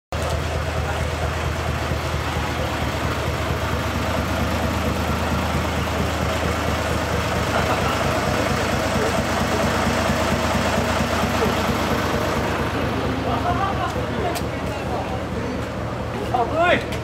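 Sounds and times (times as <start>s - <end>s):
truck engine idling: 0.1s - 17.0s.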